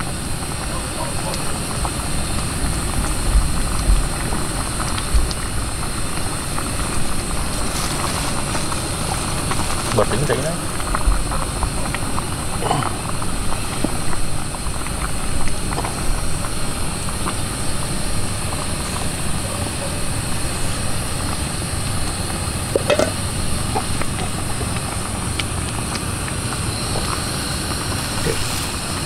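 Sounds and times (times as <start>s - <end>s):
gas stove burning: 0.0s - 29.0s
food dropping into pot: 22.8s - 23.2s.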